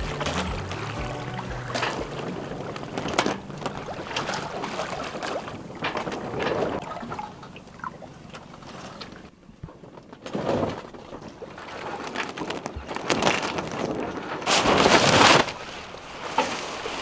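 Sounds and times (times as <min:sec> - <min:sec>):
water splashes: 0:00.0 - 0:09.4
water slapping against hull: 0:00.0 - 0:17.0.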